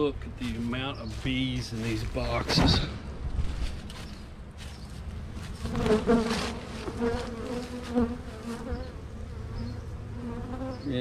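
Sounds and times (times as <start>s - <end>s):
honey bees buzzing: 4.1s - 11.0s.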